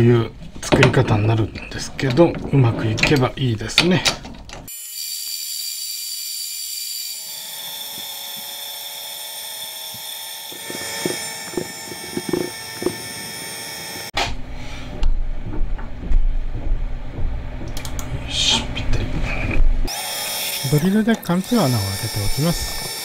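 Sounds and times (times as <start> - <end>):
lathe spindle whine: 7.1 - 14.1, 19.9 - 23.0
low rumble: 14.4 - 19.9.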